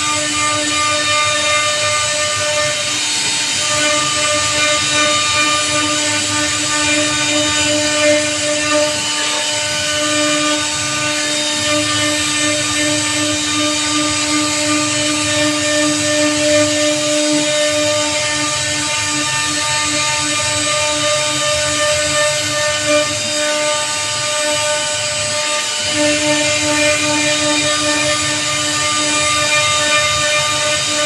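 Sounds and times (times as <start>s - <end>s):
router spindle whine: 0.0s - 31.0s.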